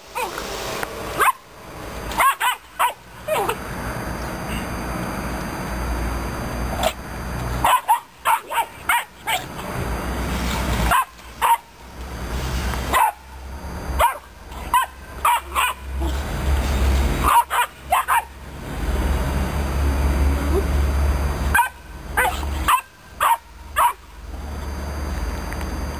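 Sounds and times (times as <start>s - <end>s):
dogs barking: 1.2s - 1.4s, 2.1s - 3.6s, 7.6s - 9.6s, 10.8s - 11.8s, 12.9s - 13.3s, 14.0s - 16.2s, 17.2s - 18.4s, 21.5s - 24.1s.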